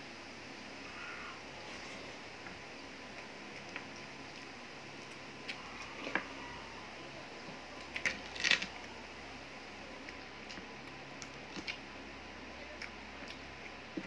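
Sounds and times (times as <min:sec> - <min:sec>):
fingers squishing food: 0:09.9 - 0:14.0
chewing: 0:10.0 - 0:12.0, 0:12.6 - 0:14.0.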